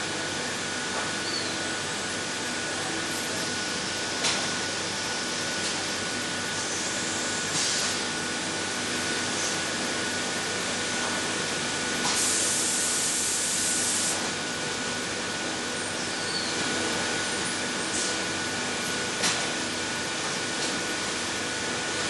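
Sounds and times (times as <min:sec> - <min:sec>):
compressed air hissing: 0:12.2 - 0:14.2.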